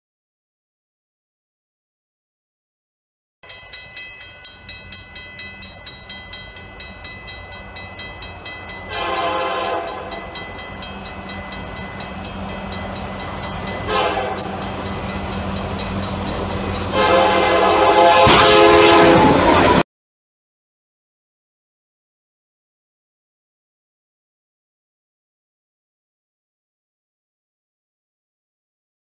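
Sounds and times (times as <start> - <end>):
crossing bell ringing: 3.4 - 19.8
train rumble: 3.5 - 19.8
locomotive air horn: 8.9 - 10.3, 13.8 - 14.6, 16.8 - 19.8.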